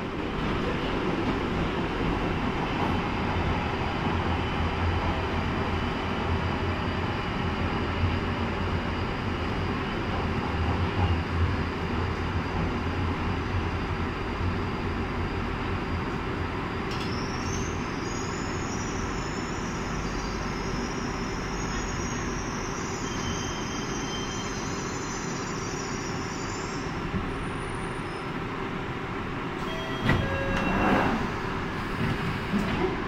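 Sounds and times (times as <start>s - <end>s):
train rumble: 0.0s - 22.8s, 26.4s - 33.0s
high-pitched train whine: 0.0s - 32.7s
train doors sliding open: 16.1s - 19.0s, 29.4s - 33.0s.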